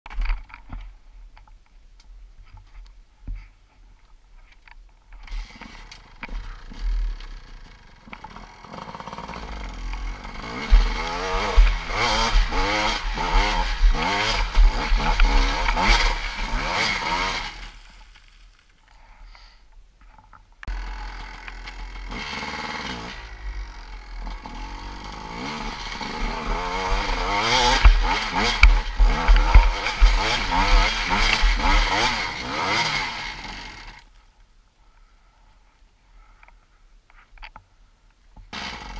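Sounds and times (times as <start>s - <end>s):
dirt bike engine revving: 5.2s - 17.8s, 20.7s - 34.0s, 38.6s - 38.9s.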